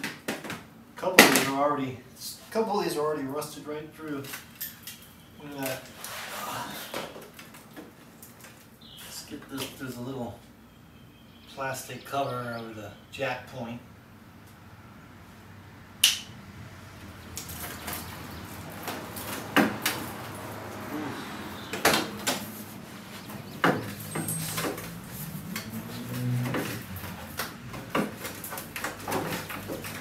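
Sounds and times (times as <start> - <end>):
hand tools clicking and scraping: 17.3 - 30.0.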